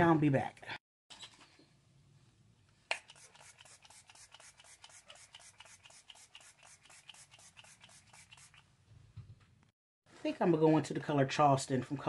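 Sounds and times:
spray bottle hissing: 2.9 - 8.6.

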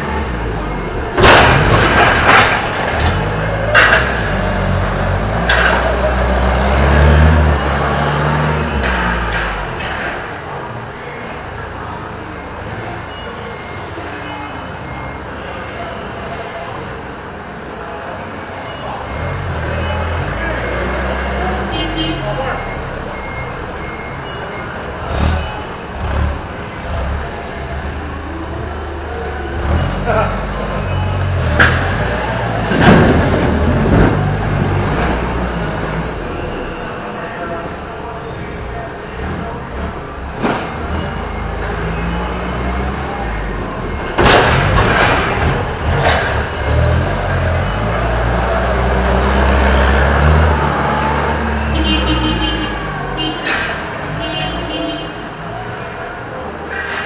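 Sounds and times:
forklifts running: 0.0 - 57.0
forklift engine driving past: 45.2 - 53.2.

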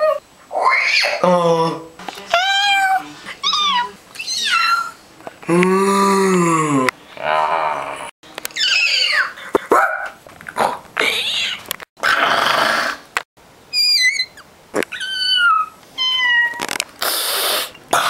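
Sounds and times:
boy whistling warbling chirps: 13.7 - 15.7.

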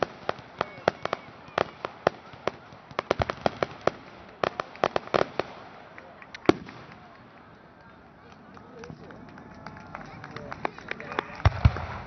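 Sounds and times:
fireworks bursting: 0.0 - 7.6, 11.4 - 12.0.

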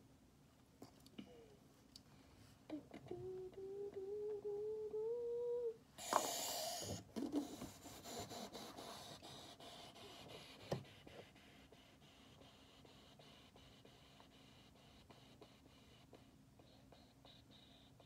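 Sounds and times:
girl humming rising note: 2.7 - 5.8
pencil scratching on paper: 7.4 - 18.0.

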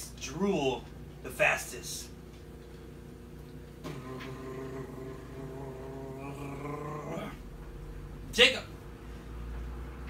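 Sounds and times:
man humming low note: 3.8 - 7.5.

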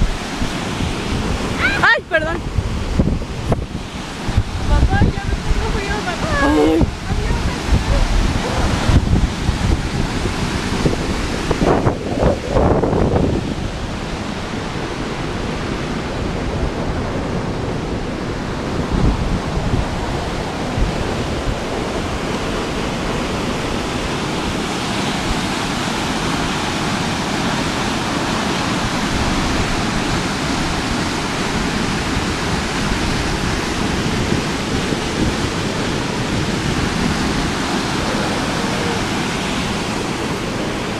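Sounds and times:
waterfall rushing: 0.0 - 40.9.

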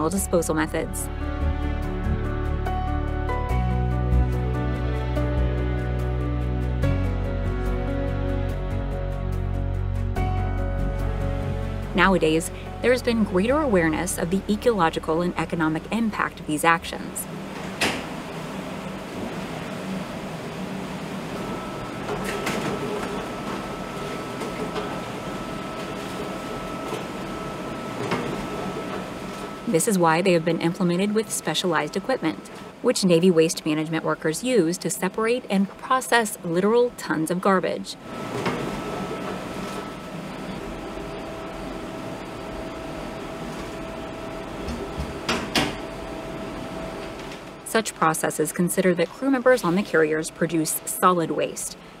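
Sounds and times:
machinery hum with high whine: 0.0 - 52.0.

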